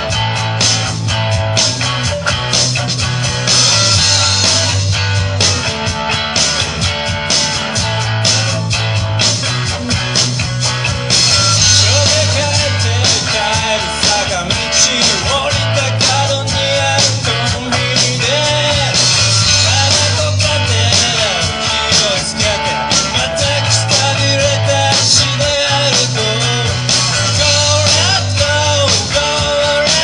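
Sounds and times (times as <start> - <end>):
bass line: 0.0 - 30.0
drum kit: 0.0 - 30.0
electric guitars: 0.0 - 30.0
man singing: 11.6 - 30.0.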